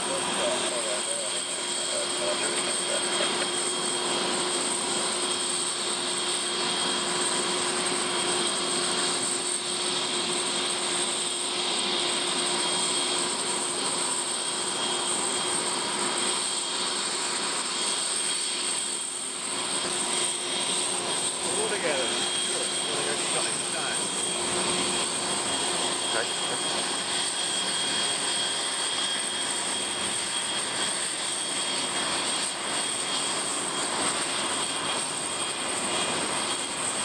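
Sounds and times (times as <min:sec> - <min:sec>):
aircraft turbine whine: 0:00.0 - 0:37.0.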